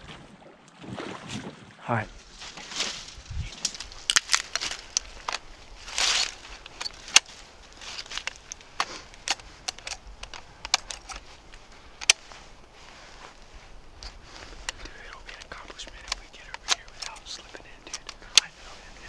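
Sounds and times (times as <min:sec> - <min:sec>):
handling rustle: 0:02.2 - 0:19.0
cartridges clicking into rifle: 0:08.0 - 0:11.2.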